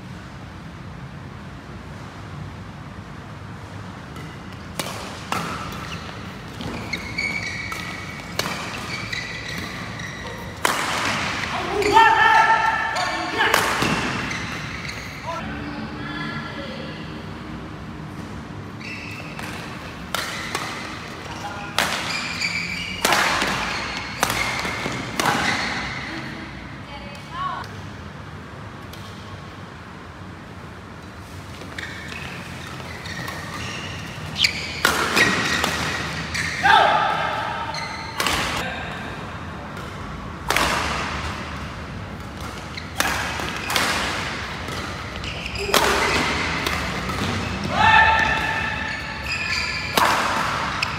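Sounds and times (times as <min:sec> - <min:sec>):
shoes squeaking on court floor: 0:04.0 - 0:15.4, 0:18.1 - 0:27.6, 0:31.0 - 0:38.6, 0:39.8 - 0:50.9
racket hitting shuttlecock: 0:04.1 - 0:15.0, 0:19.0 - 0:26.1, 0:31.6 - 0:38.6, 0:39.7 - 0:50.9.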